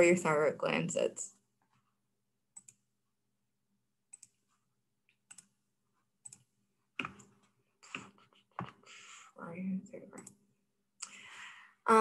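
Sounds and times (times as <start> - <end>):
computer mouse clicks: 2.6 - 2.8, 4.1 - 4.4, 5.2 - 5.6, 6.2 - 8.8, 10.2 - 10.4.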